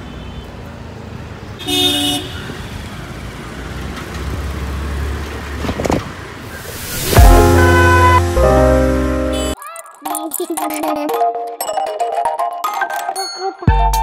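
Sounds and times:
engines and road noise rumble: 0:00.0 - 0:09.6
vehicle horn toot: 0:07.1 - 0:09.6.

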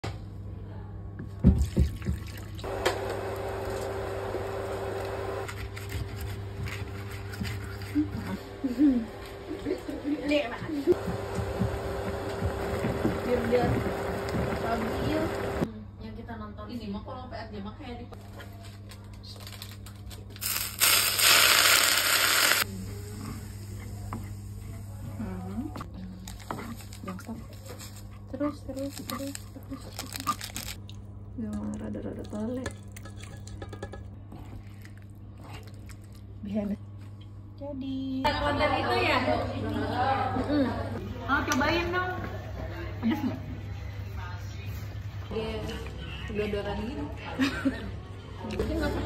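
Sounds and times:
hot oil sizzling loudly: 0:20.4 - 0:22.7.

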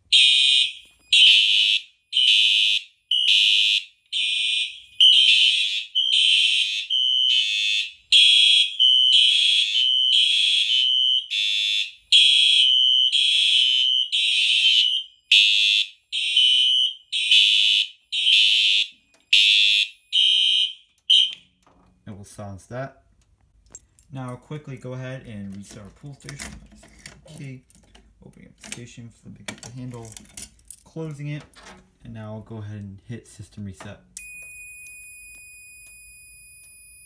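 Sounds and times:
fire alarm horn blasts: 0:00.1 - 0:21.5.

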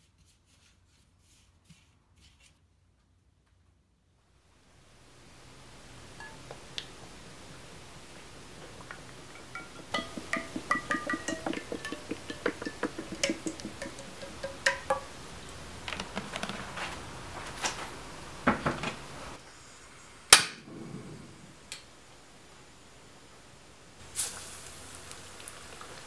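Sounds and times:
liquid pouring into saucepan: 0:08.6 - 0:15.2
light metal clinks: 0:08.9 - 0:15.1.

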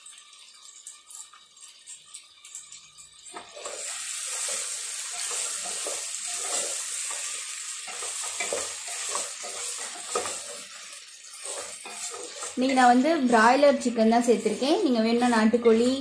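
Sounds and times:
chicken sizzling in oil: 0:00.0 - 0:16.0
wooden spatula scraping pot: 0:03.4 - 0:16.0.

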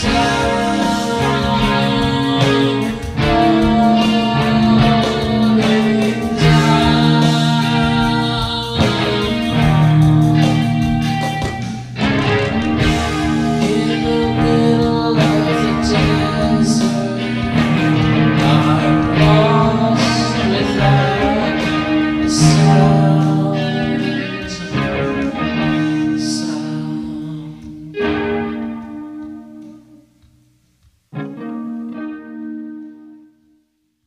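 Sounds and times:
guitar music with held notes: 0:00.0 - 0:33.8.

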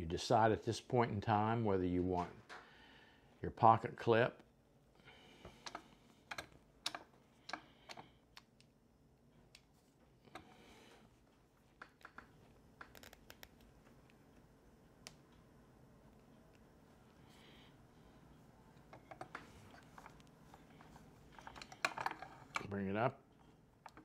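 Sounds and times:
small parts clicking and tapping: 0:05.4 - 0:08.8, 0:11.7 - 0:14.4, 0:18.8 - 0:24.0.

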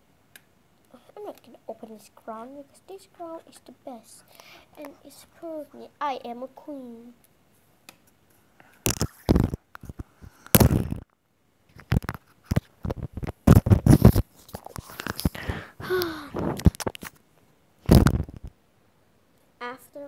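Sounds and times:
handling noise rustling and scraping: 0:11.7 - 0:15.5.

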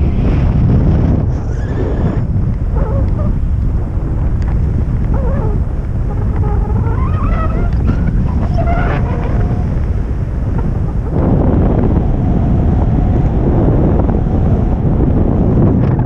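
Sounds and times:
wind buffeting microphone: 0:00.0 - 0:16.0
faint wavering gliding whistles: 0:05.1 - 0:09.8.

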